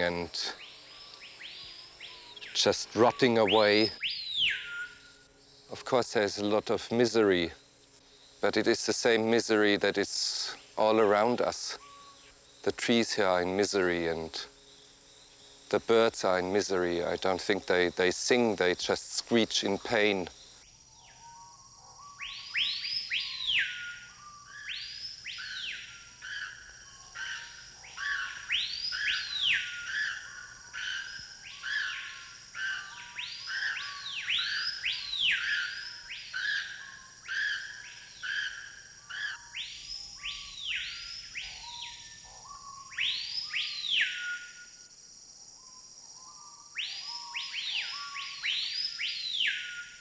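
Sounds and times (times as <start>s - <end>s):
birds whistling calls: 0.0s - 5.4s, 11.7s - 12.4s, 20.8s - 44.8s, 45.6s - 50.0s
high insect drone: 0.0s - 50.0s.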